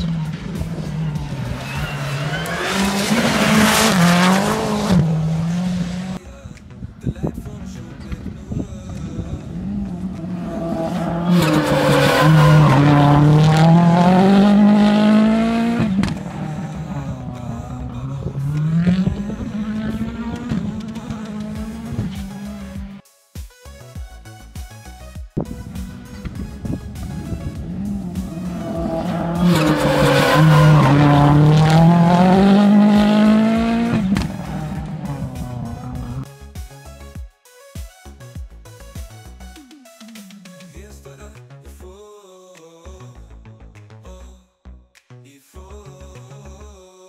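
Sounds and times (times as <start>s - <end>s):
rally car engine passing: 0.0s - 6.2s, 9.4s - 23.0s, 27.1s - 36.2s.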